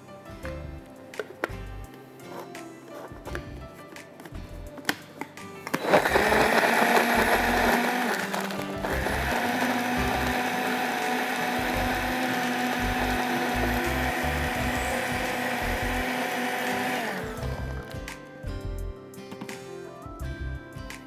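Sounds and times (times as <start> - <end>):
blender running: 5.7 - 18.0.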